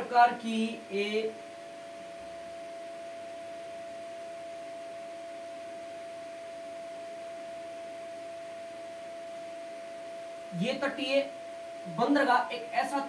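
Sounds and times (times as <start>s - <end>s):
faint hiss: 0.0s - 13.0s
single-pitched whine: 0.0s - 13.0s.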